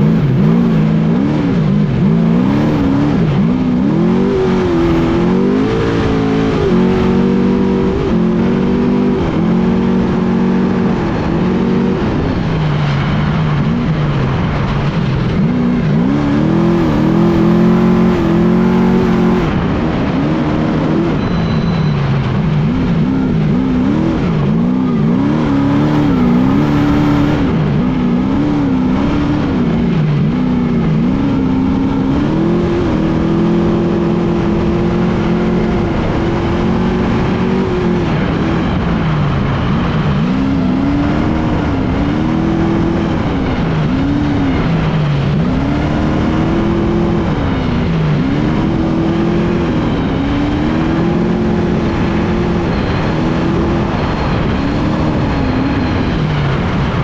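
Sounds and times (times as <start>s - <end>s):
truck engine revving: 0.0s - 57.0s
wind and dirt rush: 0.0s - 57.0s.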